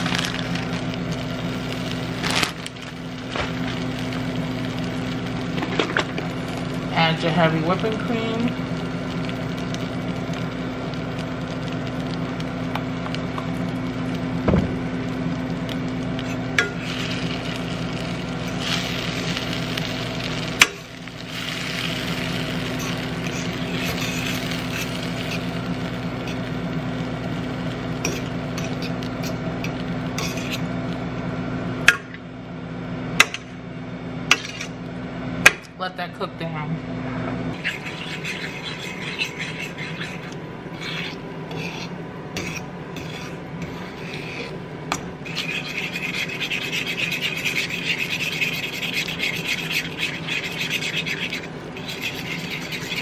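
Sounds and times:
cheese and cream sizzling in a pan: 0:00.0 - 0:31.9, 0:34.1 - 0:35.2, 0:37.5 - 0:53.0
fork stirring: 0:22.6 - 0:25.5, 0:28.0 - 0:30.7, 0:37.6 - 0:53.0.

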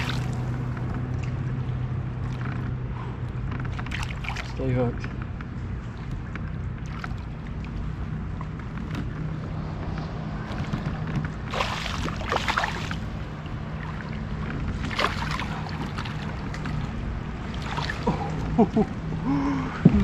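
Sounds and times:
steady low hum: 0:00.0 - 0:20.0
fish splashing at surface: 0:11.5 - 0:13.1, 0:14.8 - 0:16.7, 0:17.4 - 0:18.2.

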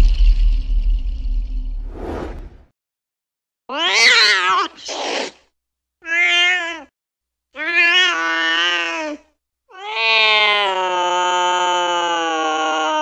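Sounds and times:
cat meowing: 0:06.0 - 0:06.9.

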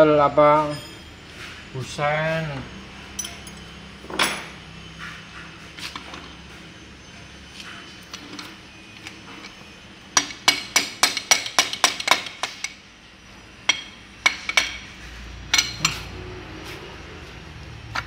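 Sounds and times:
metal tool clinking on metal: 0:03.1 - 0:04.6.

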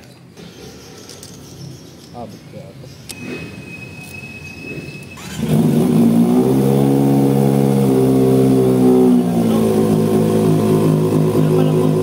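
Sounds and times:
loud motorcycle engine running: 0:05.2 - 0:12.0.

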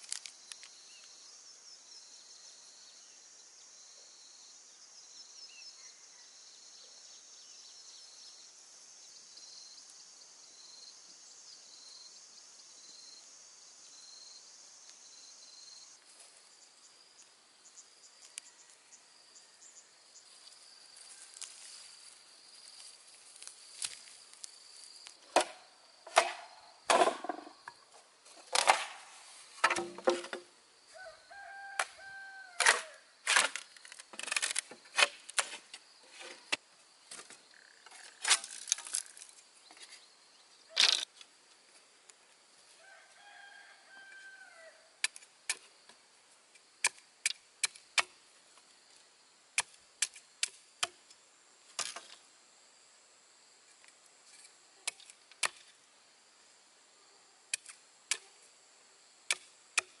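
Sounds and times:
machete chopping bamboo: 0:25.2 - 0:27.5, 0:28.5 - 0:29.0, 0:29.6 - 0:30.4, 0:32.6 - 0:35.6, 0:46.8 - 0:48.2, 0:49.6 - 0:51.0, 0:54.9 - 0:55.7, 0:59.3 - 1:00.0
rooster crowing: 0:30.9 - 0:33.0, 0:42.8 - 0:44.9.

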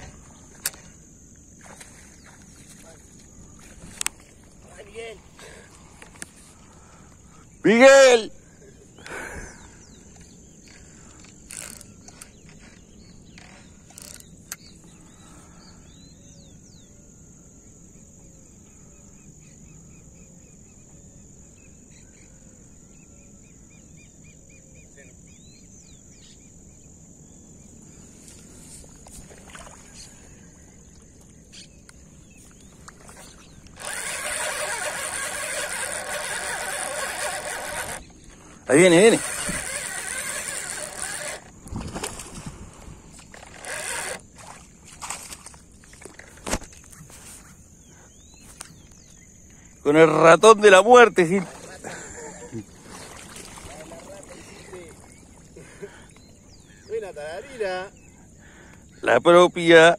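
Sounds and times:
faint bird chirps: 0:08.4 - 0:41.3, 0:47.4 - 0:50.0, 0:53.4 - 0:59.2
fishing reel whirring: 0:10.7 - 0:14.6, 0:33.0 - 0:42.4, 0:43.1 - 0:45.2.

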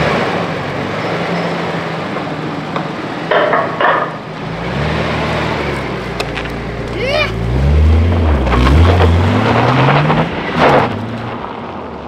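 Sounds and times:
car engine running: 0:02.4 - 0:11.4.

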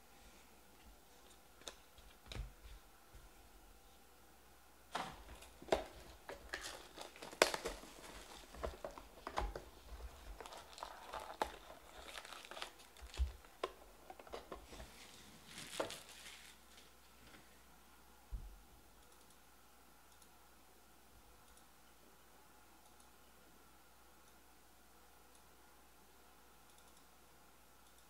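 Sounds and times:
foil wrappers crinkling: 0:05.0 - 0:16.9.

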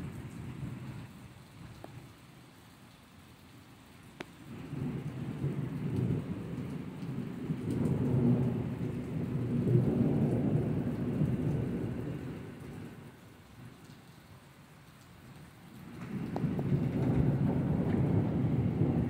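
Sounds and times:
steady rain: 0:00.0 - 0:19.0
thunder rumbling: 0:04.5 - 0:13.1, 0:15.8 - 0:19.0.

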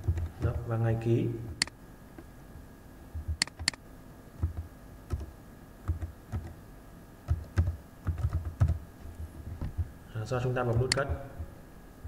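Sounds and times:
keyboard keystrokes: 0:03.3 - 0:03.8, 0:04.4 - 0:06.6, 0:07.3 - 0:08.8
sharp clicks: 0:03.4 - 0:03.8.

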